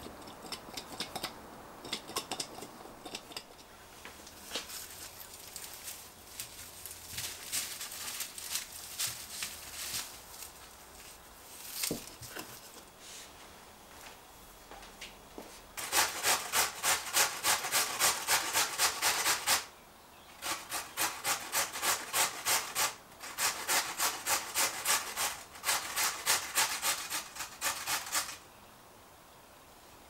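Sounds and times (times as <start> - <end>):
potato grated on metal grater: 15.8 - 19.7, 20.4 - 28.4.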